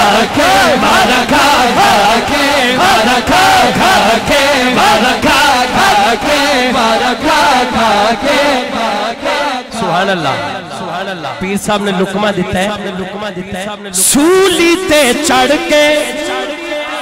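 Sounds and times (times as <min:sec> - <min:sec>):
men chanting together: 0:00.0 - 0:11.4, 0:15.3 - 0:17.0.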